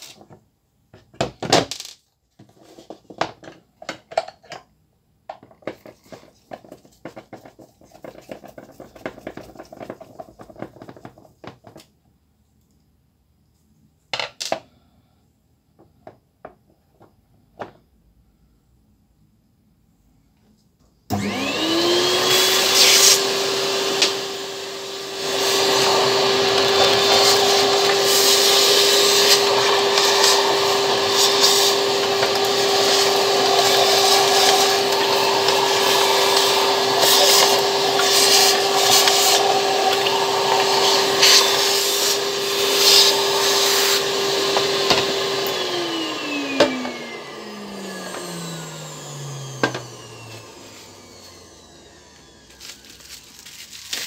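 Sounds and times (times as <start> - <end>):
plastic parts rubbing and scraping: 1.7 - 4.6, 5.4 - 12.0, 26.4 - 40.0, 52.4 - 54.0
vacuum cleaner running: 21.1 - 54.0.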